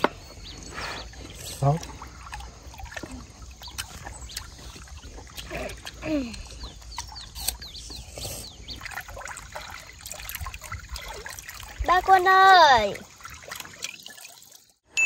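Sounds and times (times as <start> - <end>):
water splashing against boat: 8.6 - 14.6.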